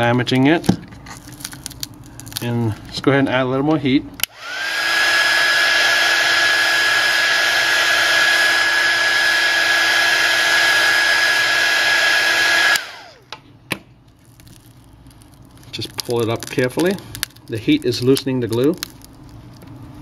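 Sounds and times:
hot-air blower fan whine: 0.0s - 14.2s.

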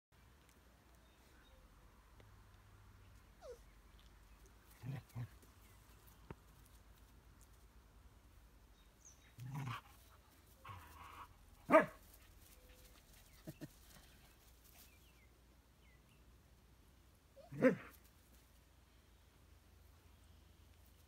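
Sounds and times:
dog barking: 11.7s - 12.0s, 17.4s - 17.9s.

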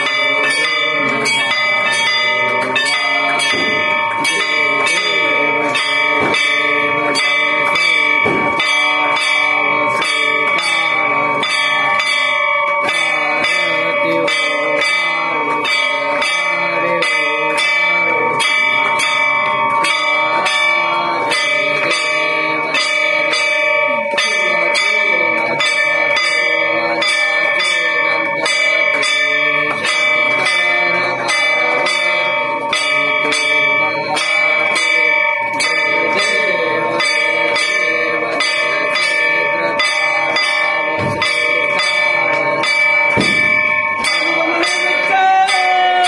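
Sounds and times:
metal gong struck with stick: 43.1s - 43.8s.

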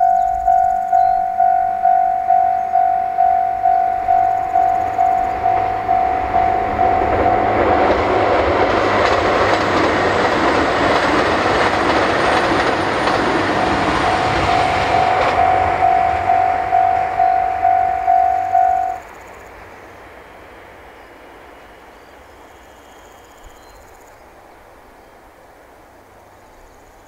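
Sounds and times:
level crossing warning bell: 0.0s - 9.4s, 12.4s - 19.1s
train passing: 0.0s - 26.9s.

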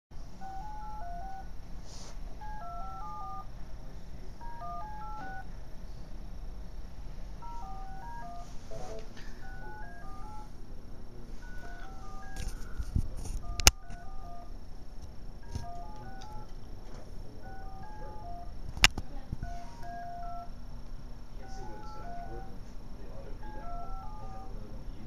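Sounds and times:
steady low hum: 0.2s - 25.0s
short electronic beeps: 2.4s - 3.5s, 13.4s - 14.5s, 15.4s - 16.5s, 17.4s - 18.6s, 23.4s - 24.5s.

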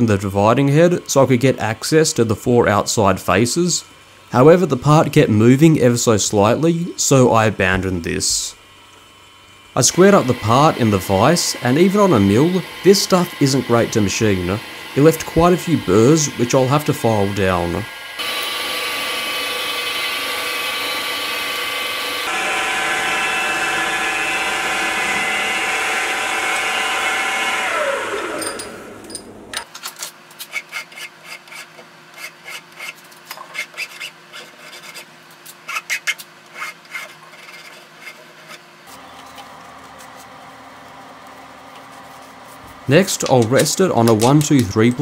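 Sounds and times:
spindle whine: 9.7s - 29.6s
milling machine cutting metal: 9.8s - 29.7s
hand file rasping on metal: 30.5s - 38.6s.

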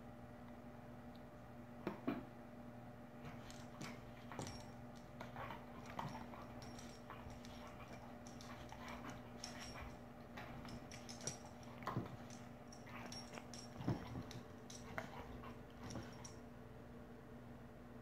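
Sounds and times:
paws tapping and scuffling: 3.2s - 16.5s.

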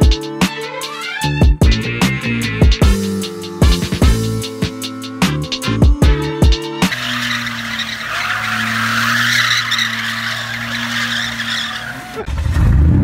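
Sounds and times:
tyre skid on asphalt: 6.8s - 13.0s
truck engine at steady revs: 6.9s - 13.0s
deep rumble: 12.3s - 13.0s.

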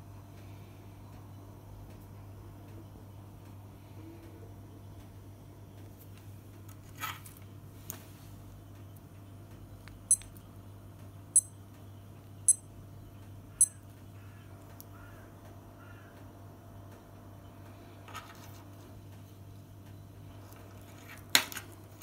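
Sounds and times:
digital watch alarm beeps: 10.1s - 10.3s, 12.5s - 12.7s, 13.6s - 13.8s.

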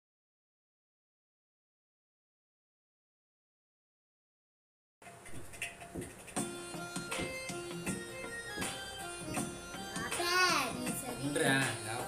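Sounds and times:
background music with drum beat: 5.0s - 12.0s.

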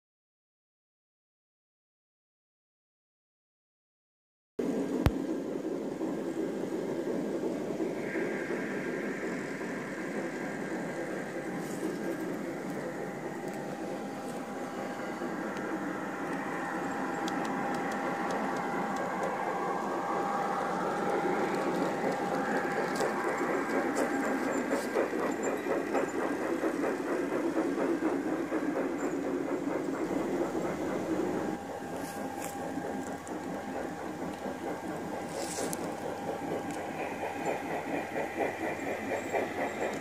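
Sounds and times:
model train wheels rumbling: 4.6s - 40.0s
locomotive motor whine: 7.8s - 27.4s, 28.2s - 40.0s.

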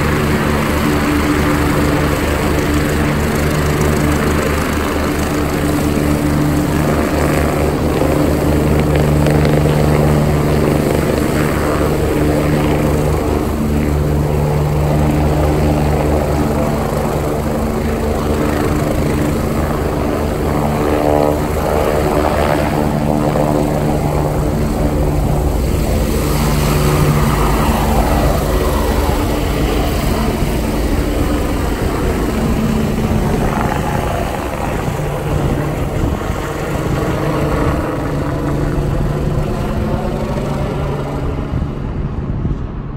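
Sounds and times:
helicopter rotor beat: 0.0s - 42.9s
turbine whine: 0.0s - 42.9s.

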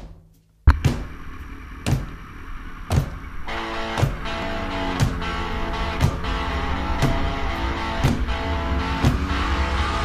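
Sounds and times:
background music with beat: 2.9s - 10.0s.

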